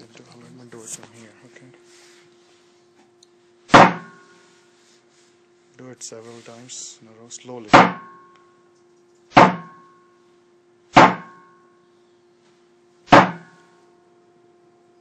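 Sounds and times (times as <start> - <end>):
sharp impacts on metal: 3.7 - 4.4, 7.7 - 8.4, 9.3 - 10.1, 10.9 - 11.7, 13.1 - 13.7
short metallic ring: 3.9 - 4.5, 7.9 - 8.6, 9.5 - 10.2, 11.0 - 11.9.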